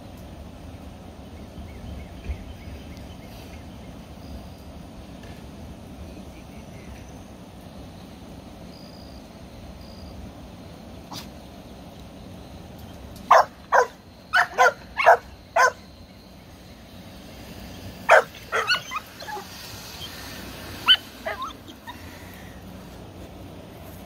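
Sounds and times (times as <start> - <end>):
puppies barking: 13.3 - 15.9, 18.0 - 22.4.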